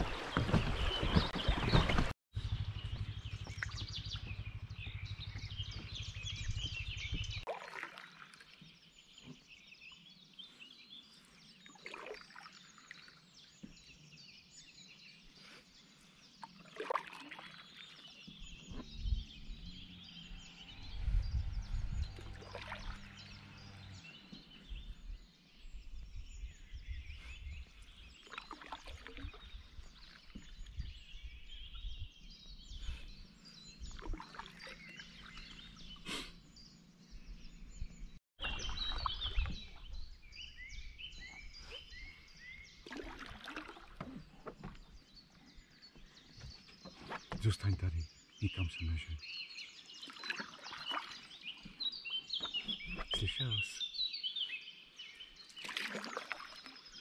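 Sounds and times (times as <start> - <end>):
kayak paddle splashing: 0.0 - 2.1, 3.4 - 9.5, 11.4 - 13.9, 16.3 - 18.9, 22.2 - 24.5, 28.0 - 30.9, 33.8 - 36.2, 38.4 - 40.6, 41.8 - 45.5, 49.9 - 53.2, 55.4 - 57.0
wind rumble on microphone: 0.0 - 7.4, 18.4 - 24.0, 24.6 - 28.1, 29.2 - 34.3, 37.0 - 42.6
small birds singing: 0.0 - 57.0.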